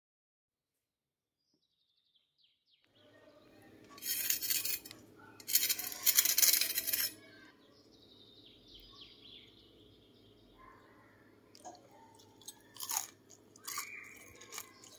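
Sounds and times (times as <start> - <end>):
knife crunching through crisp crust: 11.6 - 14.9.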